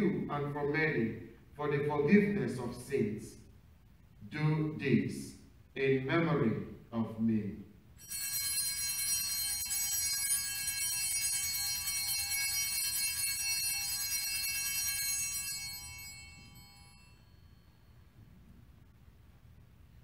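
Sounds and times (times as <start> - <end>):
altar bells ringing: 8.0 - 18.4.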